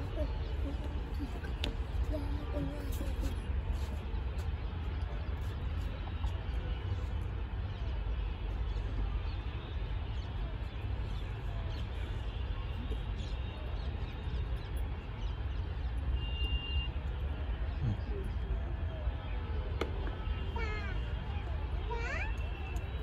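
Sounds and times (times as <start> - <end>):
faint crowd murmur: 0.0 - 23.0.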